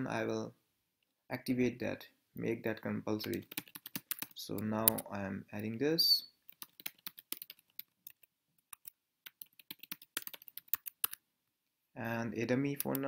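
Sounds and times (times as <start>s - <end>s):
keyboard typing: 3.2s - 5.1s, 6.5s - 11.2s, 12.7s - 13.0s.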